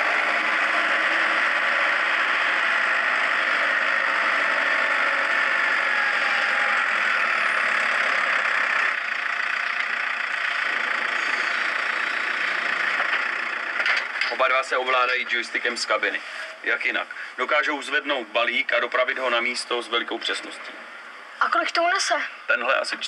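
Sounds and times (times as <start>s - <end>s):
tractor engine running: 0.0s - 19.6s.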